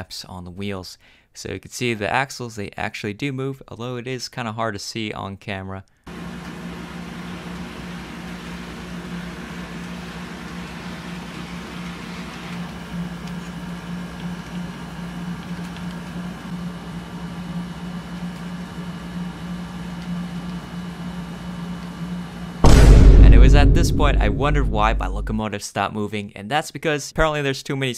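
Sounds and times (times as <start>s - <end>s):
model train running on track: 7.4s - 12.9s.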